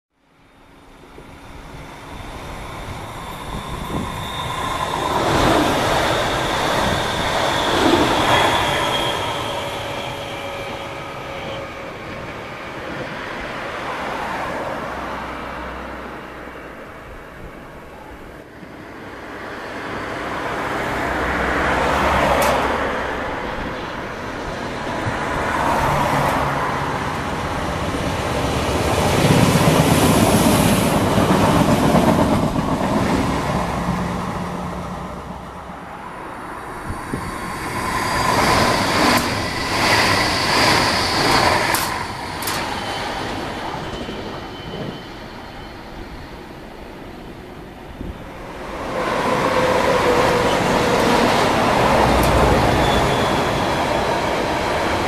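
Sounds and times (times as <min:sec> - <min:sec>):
railway noise: 0:00.1 - 0:55.0
train wheel rumble: 0:21.5 - 0:46.3, 0:47.5 - 0:55.0
high whine: 0:35.1 - 0:55.0.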